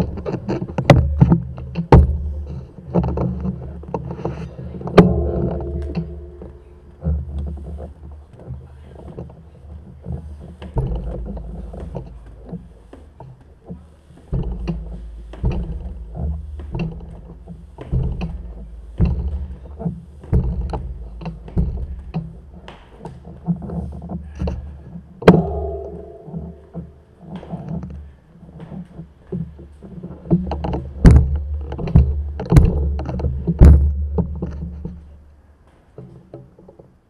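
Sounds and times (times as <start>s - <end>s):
metallic clank: 4.6s - 7.8s, 25.2s - 27.2s
footsteps on stairs: 9.0s - 27.6s.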